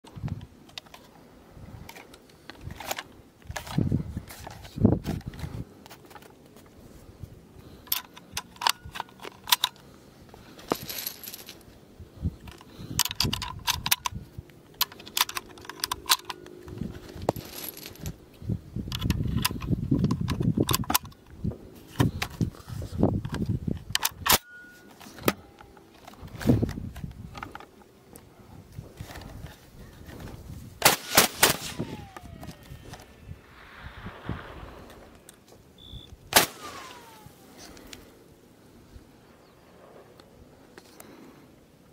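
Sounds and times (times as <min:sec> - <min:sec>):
cartridges clicking into rifle: 0:07.7 - 0:09.9, 0:12.4 - 0:18.2
low rumbling handling noise: 0:10.2 - 0:24.1.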